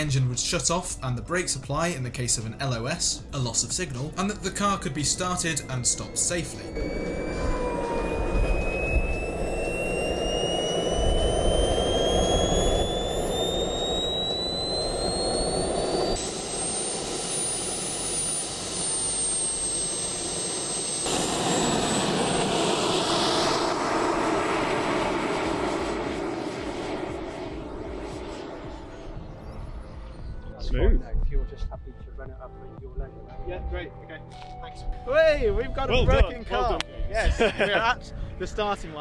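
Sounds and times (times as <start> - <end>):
turbine engine whine: 0.0 - 32.8
jet roar: 2.4 - 30.6.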